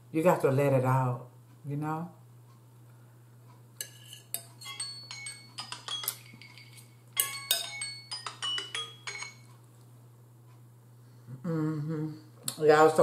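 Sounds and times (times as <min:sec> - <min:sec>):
fork clinking and scraping bowl: 0:03.8 - 0:09.5.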